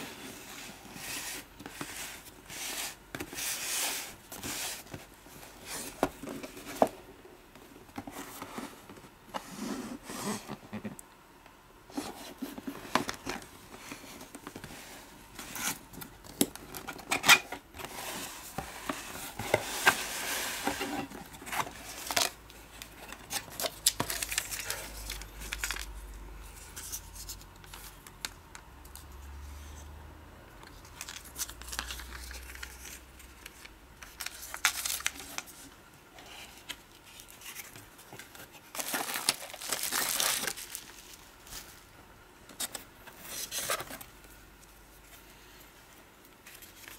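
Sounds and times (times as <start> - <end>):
bubble wrap crinkling: 21.5 - 26.0, 30.9 - 35.7, 36.6 - 41.9.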